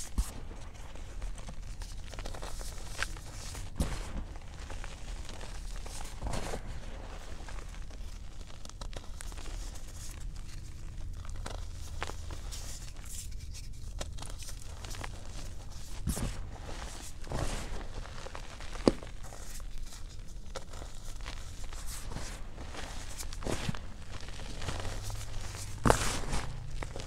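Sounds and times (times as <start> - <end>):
feet crunching chalk: 21.7 - 27.0.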